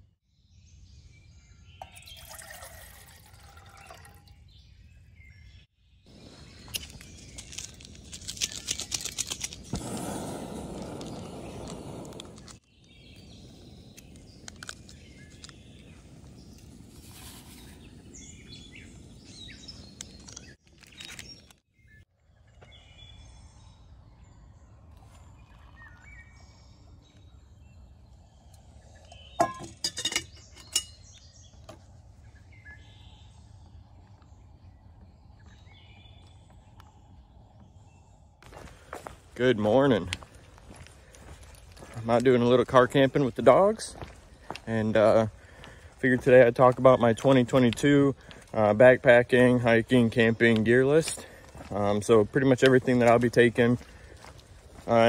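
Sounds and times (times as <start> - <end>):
birds chirping: 0.0 - 55.0
camp stove burner hissing: 9.3 - 12.6.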